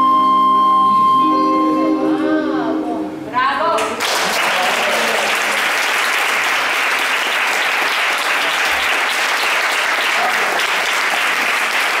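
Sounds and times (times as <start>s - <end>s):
audience applauding: 3.8s - 12.0s.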